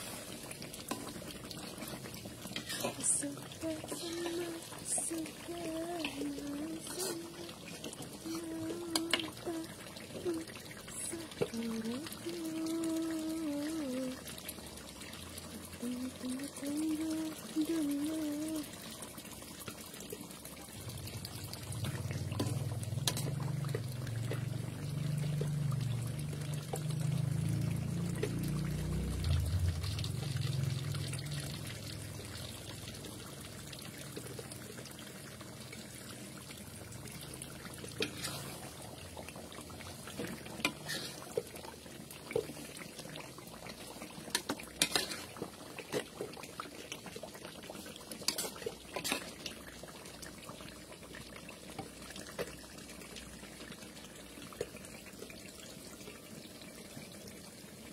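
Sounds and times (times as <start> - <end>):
sauce simmering and bubbling: 0.0 - 57.9
spatula scraping a wok: 2.6 - 3.1, 38.0 - 38.7, 40.6 - 41.4, 44.8 - 45.4, 48.3 - 49.4.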